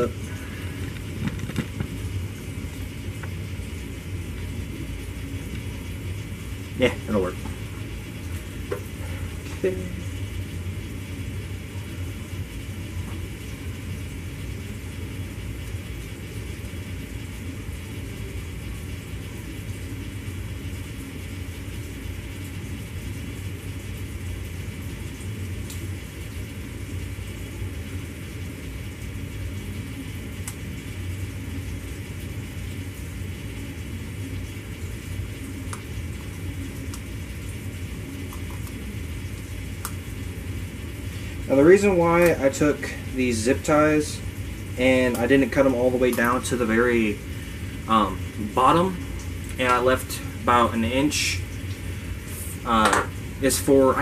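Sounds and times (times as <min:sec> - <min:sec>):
low rumble and hiss: 0:00.0 - 0:54.0.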